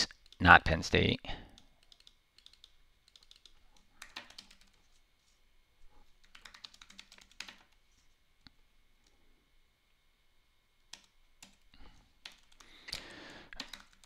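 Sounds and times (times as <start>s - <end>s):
faint keyboard typing: 0.0s - 0.5s, 1.4s - 5.4s, 6.0s - 9.2s, 10.8s - 14.0s.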